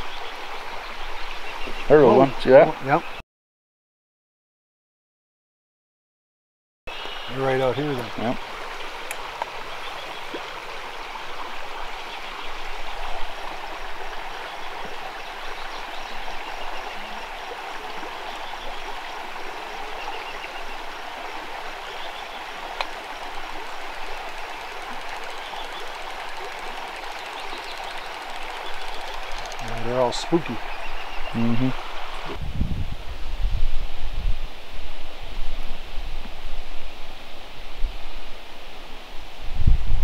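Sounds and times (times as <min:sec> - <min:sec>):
creek water rippling over stones: 0:00.0 - 0:03.0, 0:06.9 - 0:32.4.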